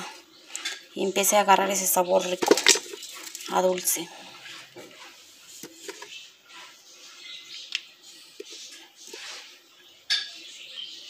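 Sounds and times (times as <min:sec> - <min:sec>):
hard chunks knocking in metal pot: 0:02.2 - 0:03.5.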